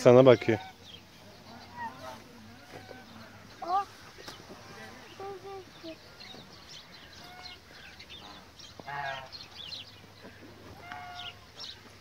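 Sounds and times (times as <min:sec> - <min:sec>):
geese honking: 0:00.0 - 0:03.9, 0:07.0 - 0:09.5, 0:10.2 - 0:11.6.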